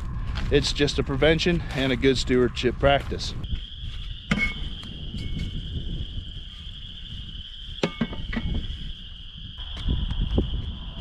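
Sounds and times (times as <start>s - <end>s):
low outdoor rumble: 0.0s - 7.6s
insects trilling: 0.0s - 11.0s.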